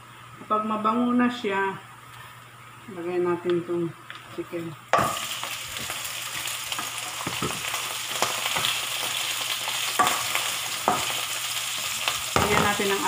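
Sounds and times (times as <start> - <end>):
chicken sizzling in hot oil: 4.9 - 13.0.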